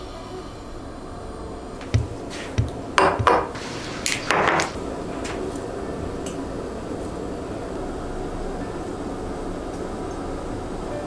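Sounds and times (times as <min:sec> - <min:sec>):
glass clinks and knocks: 0:03.0 - 0:03.5.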